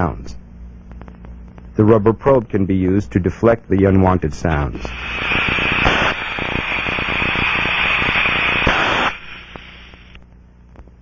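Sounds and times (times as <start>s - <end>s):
rushing hiss with crackles: 4.8s - 10.2s.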